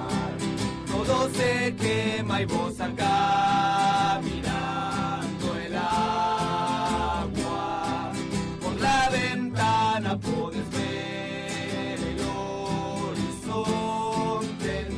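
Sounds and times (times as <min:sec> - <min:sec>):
person singing long held notes: 0:00.0 - 0:00.4
acoustic guitar: 0:00.0 - 0:14.9.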